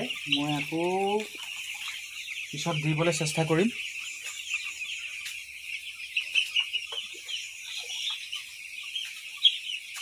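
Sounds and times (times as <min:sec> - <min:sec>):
chicks peeping: 0:00.0 - 0:10.0.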